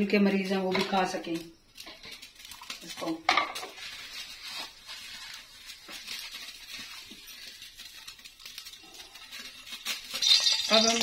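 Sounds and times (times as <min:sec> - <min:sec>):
oil hissing in a pan: 0:08.3 - 0:11.0.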